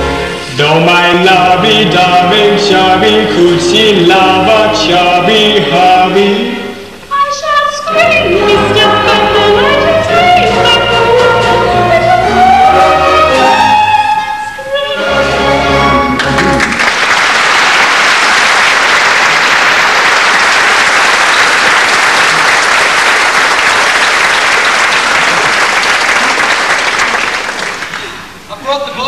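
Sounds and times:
audience applause: 0:16.2 - 0:28.3.

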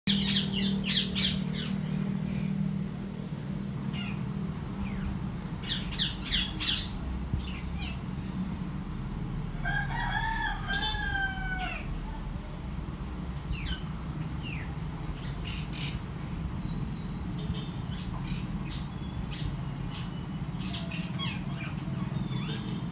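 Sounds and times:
parakeet chicks squeaking: 0:00.1 - 0:02.5, 0:03.9 - 0:08.1, 0:13.5 - 0:22.9
rooster crowing: 0:09.5 - 0:12.2.

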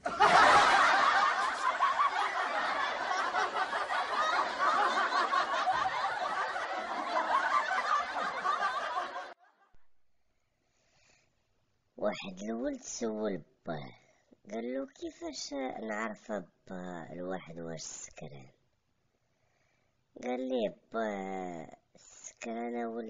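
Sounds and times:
audience laughter: 0:00.0 - 0:09.4.

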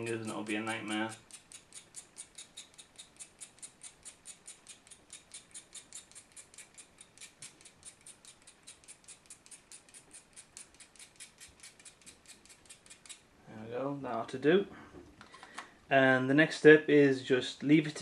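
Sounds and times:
blade scraping chalk: 0:00.0 - 0:13.2.

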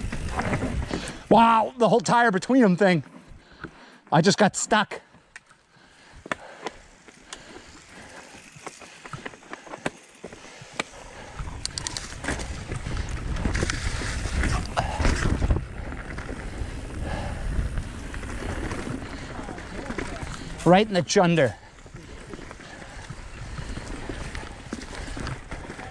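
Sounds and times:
mountain bike on dirt trail: 0:00.0 - 0:25.9
bike clicks and knocks: 0:06.2 - 0:16.6.

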